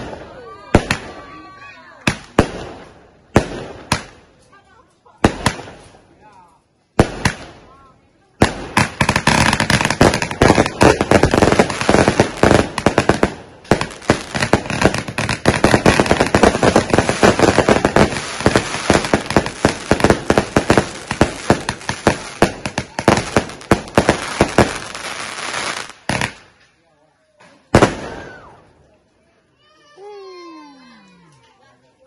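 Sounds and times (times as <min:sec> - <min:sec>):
firework cake firing rapid shots: 0:00.0 - 0:04.2, 0:05.2 - 0:06.0, 0:06.9 - 0:26.5.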